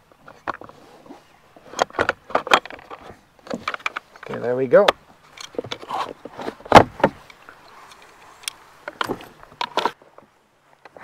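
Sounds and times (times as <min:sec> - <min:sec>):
loud plastic clunk: 0:04.9 - 0:07.2.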